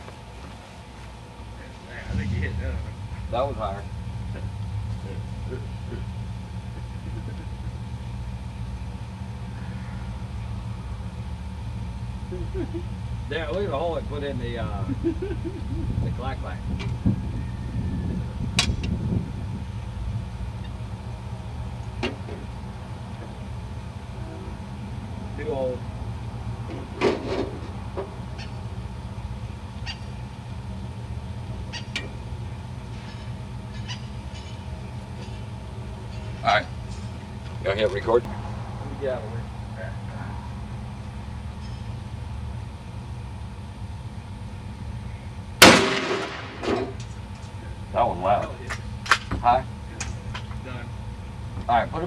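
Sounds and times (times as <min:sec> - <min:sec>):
engine idling hum: 0:00.0 - 0:52.0
steady low rumble: 0:00.0 - 0:52.0.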